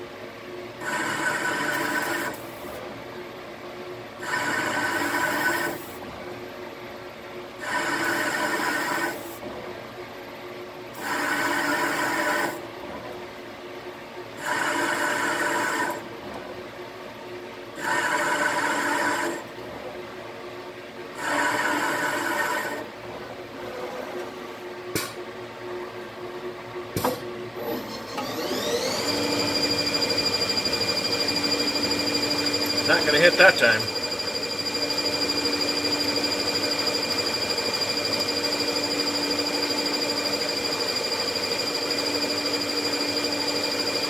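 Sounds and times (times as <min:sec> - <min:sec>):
lathe spindle whine: 0:00.8 - 0:02.4, 0:04.2 - 0:05.8, 0:07.7 - 0:09.2, 0:21.2 - 0:22.8, 0:27.8 - 0:44.0
lathe running: 0:28.2 - 0:44.0.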